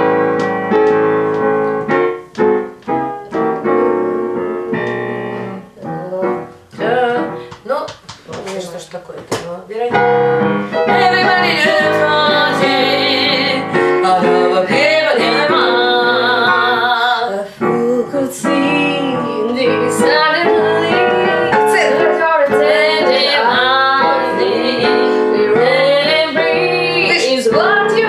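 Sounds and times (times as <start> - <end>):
piano accompaniment: 0.0 - 28.0
woman singing jazz: 5.6 - 7.9, 8.5 - 28.0.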